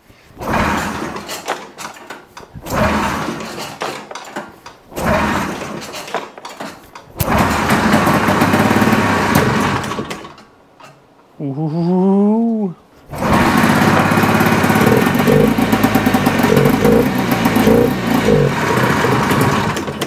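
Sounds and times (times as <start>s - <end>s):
snowmobile engine starting and running: 0.4s - 1.4s, 2.6s - 3.8s, 4.9s - 6.0s, 7.2s - 10.4s, 13.1s - 20.0s.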